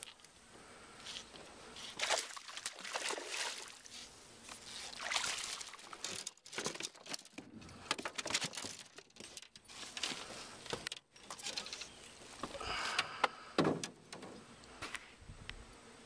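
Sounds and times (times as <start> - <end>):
fish splashing water: 1.9 - 4.0, 4.7 - 6.4
clicks and clatter: 6.0 - 11.9.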